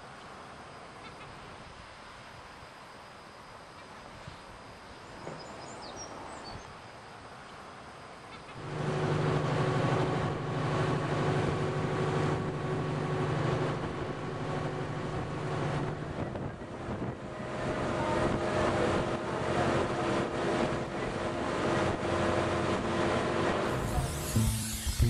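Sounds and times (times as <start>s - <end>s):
boat engine running: 8.6s - 25.0s
wind buffeting microphone: 13.6s - 22.2s.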